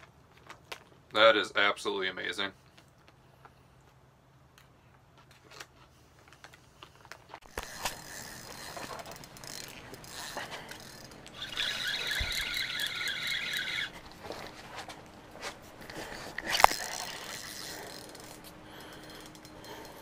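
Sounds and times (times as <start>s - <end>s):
rustling and knocks of gear: 0.0s - 1.2s, 4.6s - 20.0s
fishing reel drag buzzing: 7.5s - 14.5s, 15.9s - 20.0s.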